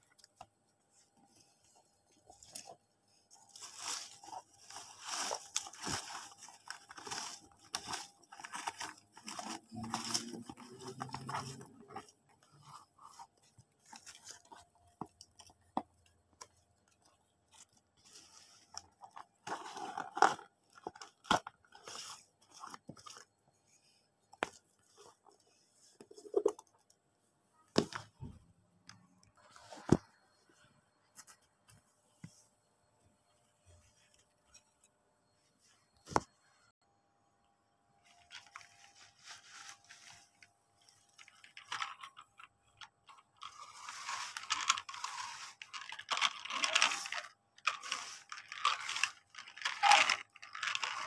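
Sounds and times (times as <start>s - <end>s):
cardboard and paper rustling: 0.2s - 26.6s, 38.0s - 51.0s.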